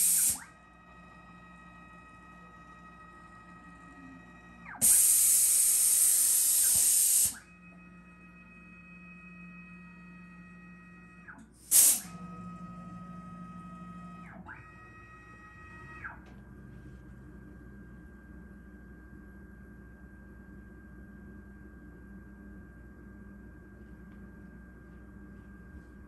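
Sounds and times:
compressed air blast: 0:00.0 - 0:00.4, 0:04.8 - 0:07.4, 0:11.7 - 0:12.1.

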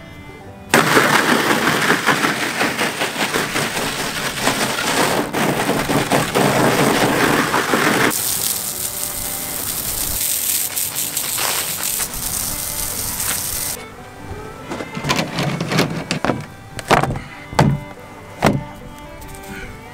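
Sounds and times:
garden hose spraying water: 0:00.7 - 0:13.8.

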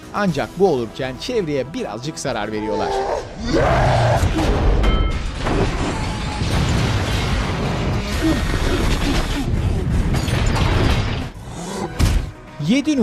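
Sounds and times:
action film score music: 0:00.0 - 0:13.0
crashes and booms: 0:04.2 - 0:11.4.

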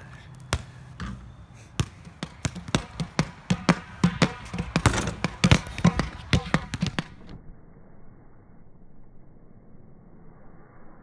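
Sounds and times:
basketball bouncing on pavement: 0:00.0 - 0:07.4.

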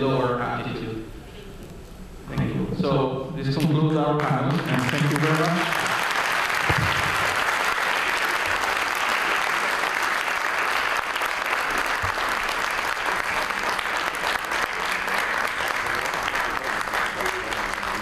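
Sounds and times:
audience applauding: 0:04.5 - 0:18.0.

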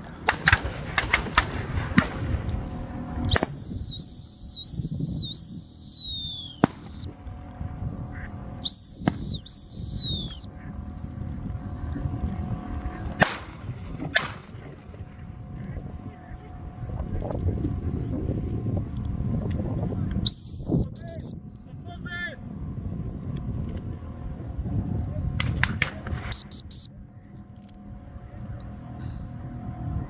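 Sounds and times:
sharp clicks: 0:03.3 - 0:07.0
dog whistle blasts: 0:03.3 - 0:07.1, 0:08.6 - 0:10.4, 0:20.2 - 0:21.4, 0:26.3 - 0:26.9.

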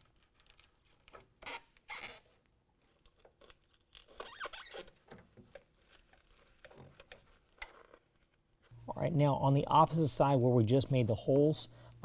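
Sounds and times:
squeaky scraping through rug liner: 0:00.0 - 0:02.4, 0:03.9 - 0:05.0.

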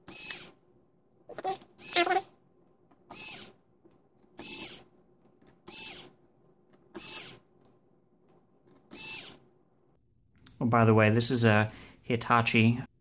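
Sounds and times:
cordless screwdriver motor whine: 0:00.0 - 0:00.6, 0:01.8 - 0:02.2, 0:03.1 - 0:03.6, 0:04.4 - 0:04.9, 0:05.7 - 0:06.1, 0:07.0 - 0:07.4, 0:08.9 - 0:09.4.

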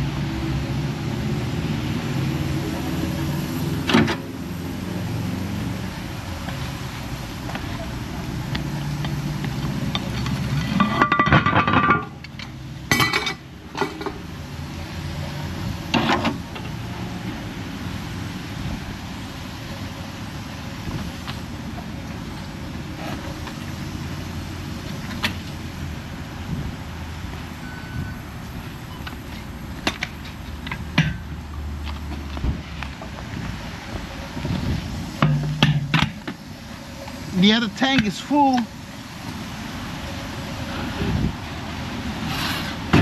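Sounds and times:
metallic clinking and clanks: 0:09.9 - 0:14.2.

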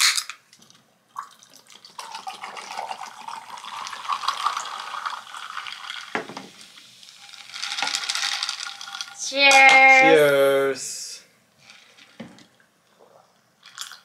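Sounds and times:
liquid pouring over ice: 0:01.1 - 0:09.3, 0:11.6 - 0:14.0.

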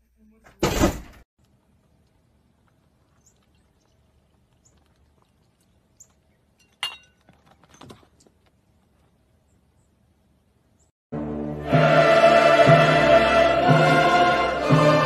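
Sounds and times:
small birds chirping: 0:01.9 - 0:06.6, 0:08.6 - 0:10.9.

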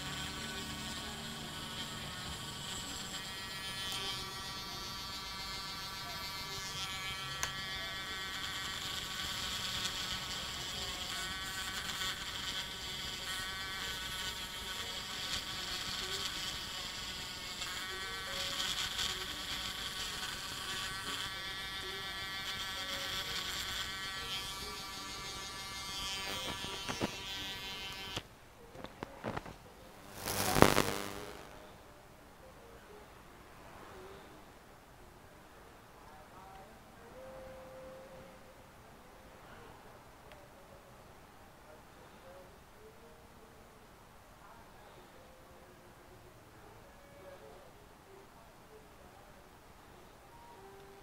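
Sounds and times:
rotary tool grinding plastic: 0:00.0 - 0:28.2.

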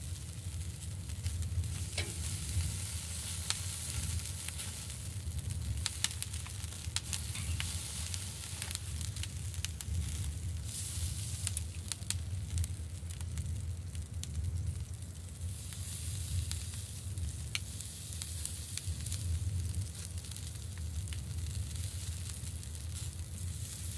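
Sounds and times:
low steady rumble: 0:00.0 - 0:20.0
sausage sizzling on grill: 0:00.0 - 0:23.9
sharp pops and crackles: 0:00.8 - 0:13.4.

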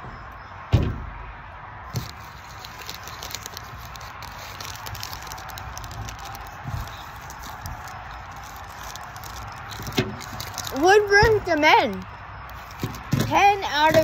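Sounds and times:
dull bump: 0:00.0 - 0:01.3
wrapper crinkling and tearing: 0:01.9 - 0:14.0.

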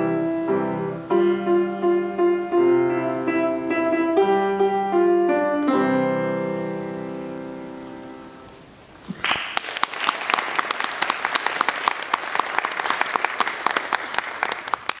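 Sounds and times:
piano chord: 0:00.0 - 0:08.7
audience applauding: 0:09.0 - 0:15.0.

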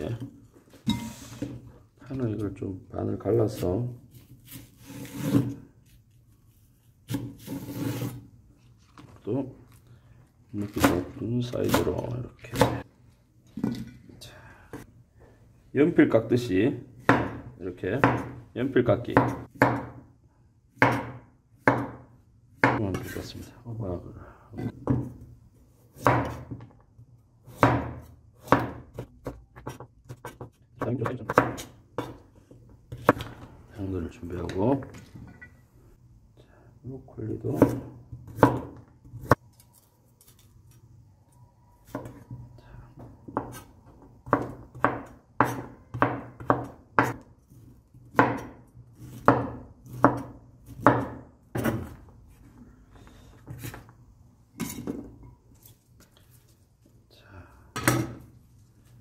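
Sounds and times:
knife chopping on wooden board: 0:17.0 - 0:18.4, 0:19.1 - 0:20.0, 0:20.8 - 0:22.9, 0:25.9 - 0:26.6, 0:27.5 - 0:32.2, 0:37.6 - 0:39.4, 0:43.3 - 0:47.2, 0:48.1 - 0:52.0.

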